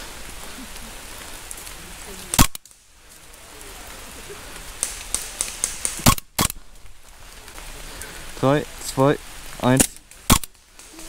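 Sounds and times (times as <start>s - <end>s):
rain hissing: 0.0s - 11.0s
faint clicks: 4.5s - 8.2s
airsoft gun shot: 5.9s - 6.6s, 10.3s - 10.5s.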